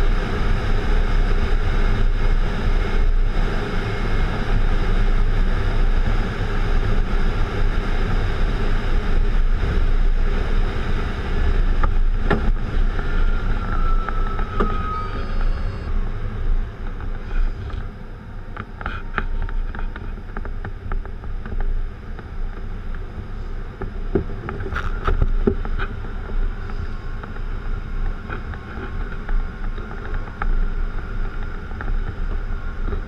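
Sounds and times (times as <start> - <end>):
faint steady high tone: 12.8 - 17.6.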